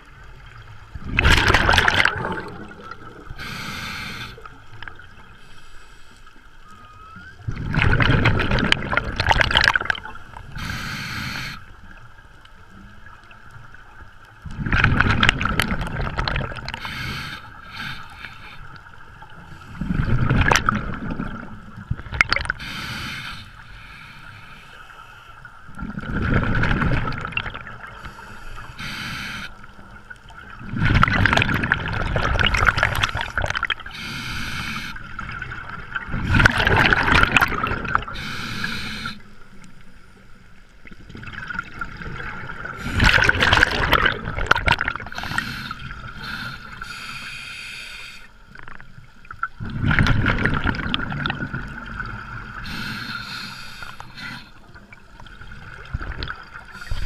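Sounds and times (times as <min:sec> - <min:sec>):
diver exhaling bubbles: 0:01.0 - 0:04.4, 0:30.6 - 0:39.2, 0:41.4 - 0:46.8
regulator inhale hiss: 0:03.4 - 0:04.6, 0:05.3 - 0:06.5, 0:10.5 - 0:11.7, 0:16.7 - 0:18.8, 0:19.4 - 0:20.0, 0:22.6 - 0:25.5, 0:28.0 - 0:29.7, 0:33.0 - 0:35.1, 0:38.1 - 0:39.6, 0:45.1 - 0:48.4, 0:52.6 - 0:54.7, 0:56.6 - 0:57.0.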